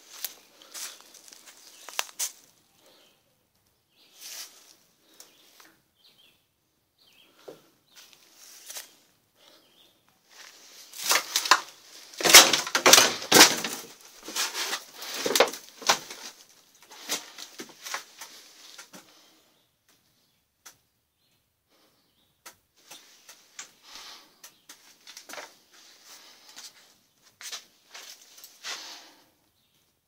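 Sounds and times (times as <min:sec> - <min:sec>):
close rustling and crackling: 0:00.0 - 0:03.0, 0:10.2 - 0:19.4.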